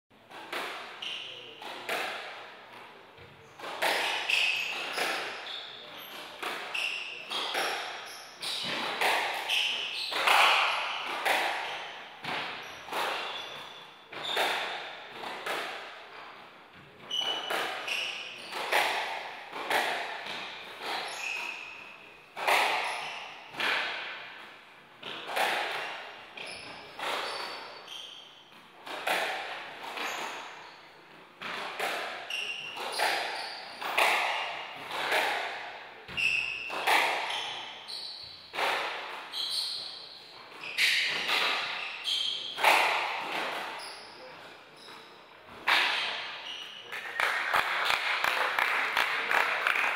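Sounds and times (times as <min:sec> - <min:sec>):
squash ball hitting rackets and walls: 0:00.2 - 0:49.9
shoes squeaking on wooden floor: 0:03.2 - 0:15.5, 0:16.1 - 0:23.7, 0:25.8 - 0:29.0, 0:29.9 - 0:31.6, 0:32.2 - 0:35.2, 0:36.0 - 0:46.9.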